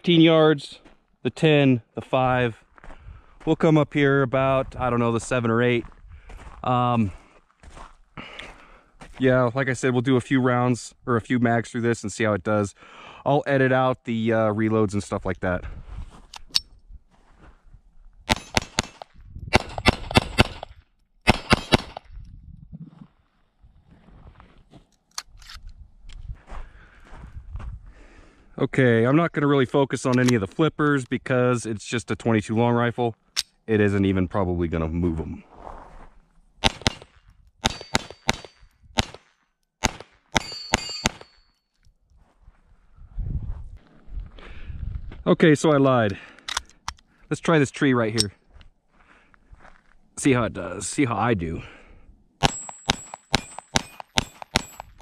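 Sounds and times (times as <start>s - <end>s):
pistol shots: 18.3s - 20.7s, 21.3s - 22.0s, 36.6s - 39.2s, 39.8s - 41.3s, 52.4s - 55.0s
bullets clanging on steel targets: 36.7s - 39.2s, 40.4s - 41.6s, 52.4s - 55.0s.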